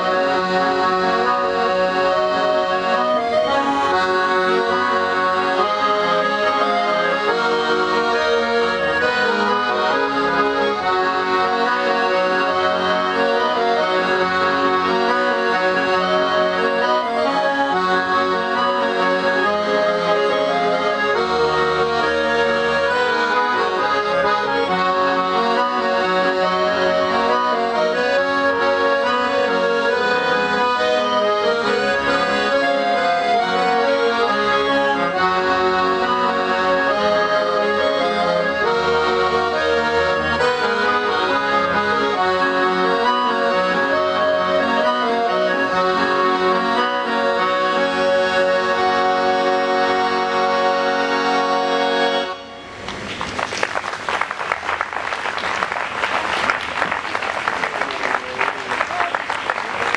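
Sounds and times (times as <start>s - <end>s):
accordions playing: 0.0s - 59.9s
audience applauding: 52.8s - 59.9s.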